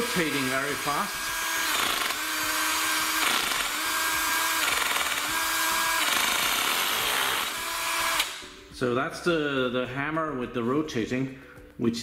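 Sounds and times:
hammer drill motor whine: 0.0s - 8.5s.

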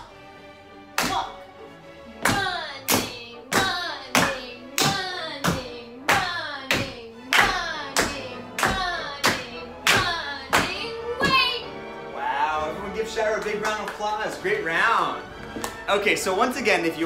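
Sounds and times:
hands clapping: 2.2s - 10.8s, 13.2s - 14.4s, 15.4s - 15.8s.

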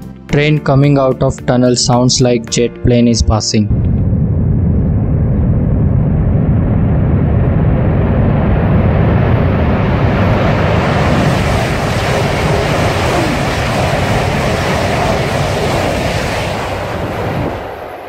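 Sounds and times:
high-speed train rushing in tunnel: 3.7s - 18.0s.

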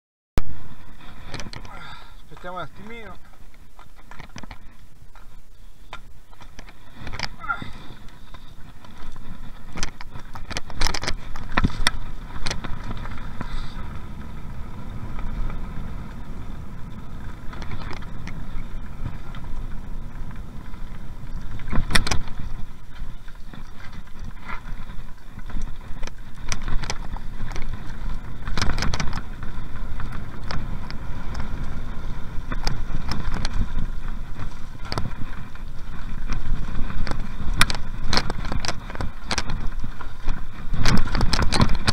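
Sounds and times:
bike knocks and rattles: 0.4s - 41.9s
rumble of tyres and wind: 0.4s - 41.9s.

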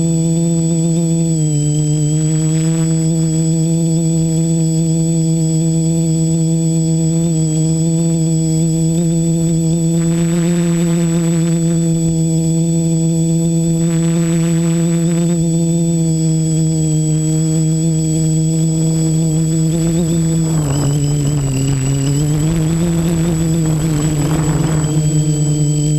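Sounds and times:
drone motors whining: 0.1s - 25.9s.

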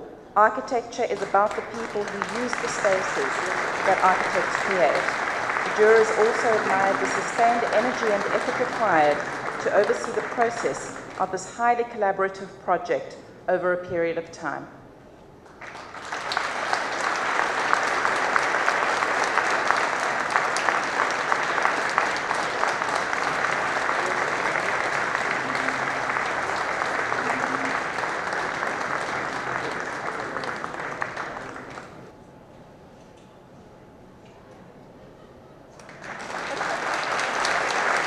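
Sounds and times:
audience applauding: 1.1s - 11.2s, 15.5s - 32.1s, 35.8s - 38.0s.

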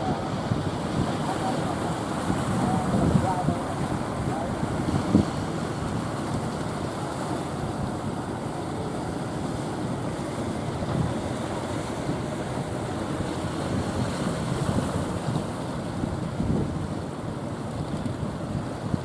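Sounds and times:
rough surf rushing: 0.0s - 19.0s
wind buffeting microphone: 0.0s - 19.0s.

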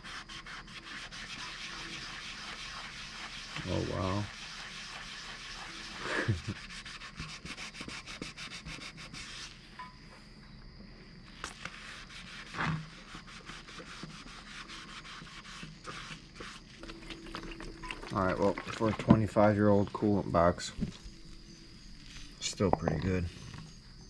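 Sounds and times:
sponge scrubbing plastic: 0.0s - 9.6s, 11.4s - 20.2s.

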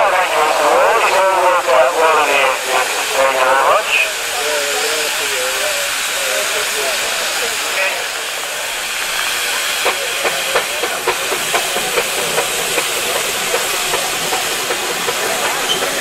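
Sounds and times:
steam hissing: 0.0s - 16.0s
steam engine exhaust chuffing: 3.8s - 16.0s.

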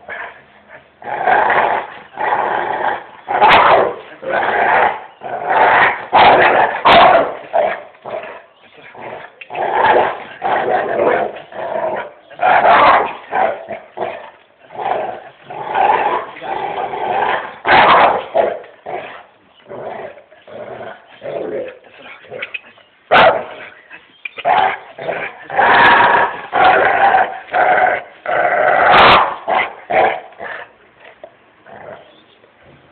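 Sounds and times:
dog growling and barking: 1.0s - 23.8s, 24.4s - 30.7s.

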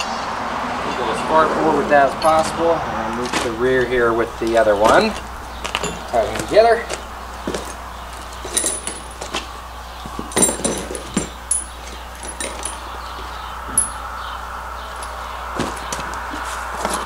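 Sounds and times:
metal hardware clinking in a box: 5.7s - 6.6s, 7.4s - 12.9s, 13.7s - 14.0s.

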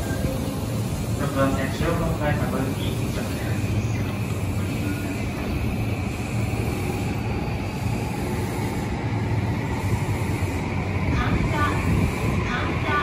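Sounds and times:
electric train humming: 0.0s - 13.0s.

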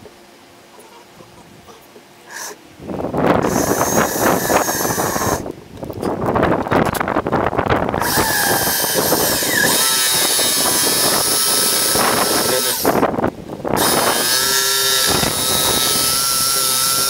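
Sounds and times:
electric drill boring through fiberglass: 3.4s - 5.4s, 8.0s - 13.0s, 13.8s - 17.0s.

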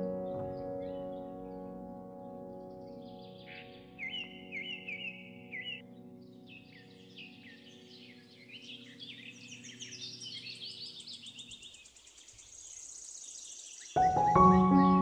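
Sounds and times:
soft music drone: 0.0s - 11.6s
music with piano-like notes: 0.0s - 11.7s, 14.0s - 15.0s
birds chirping: 0.0s - 15.0s.

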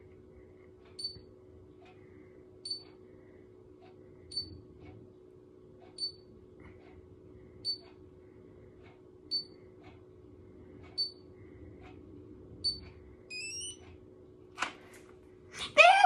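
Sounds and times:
curler beeping: 13.3s - 13.8s.

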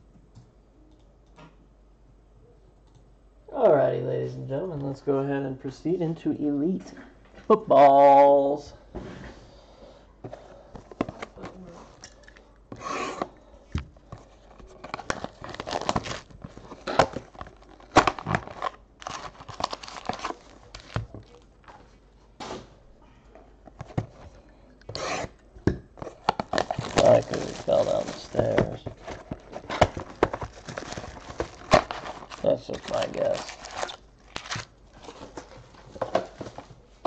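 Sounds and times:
cardboard boxes being opened: 14.0s - 21.9s, 26.0s - 36.7s
plastic shrink wrap tearing: 14.6s - 21.8s, 26.1s - 35.6s.

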